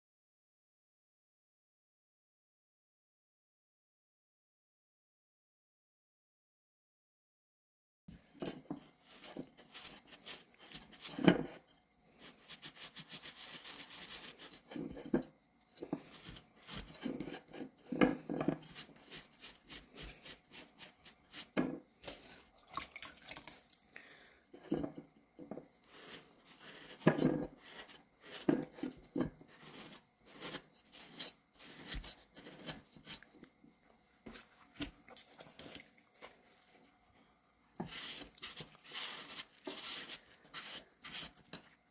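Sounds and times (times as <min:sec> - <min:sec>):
sponge scrubbing ceramic: 0:08.2 - 0:22.5, 0:24.6 - 0:33.4, 0:37.7 - 0:41.9.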